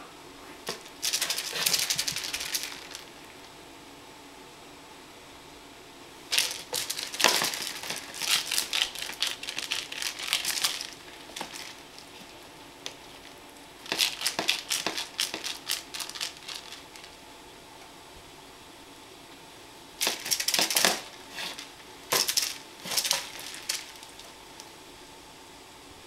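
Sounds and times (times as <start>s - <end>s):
spring cat toy clattering: 6.3s - 12.3s, 13.9s - 17.1s, 20.0s - 24.3s.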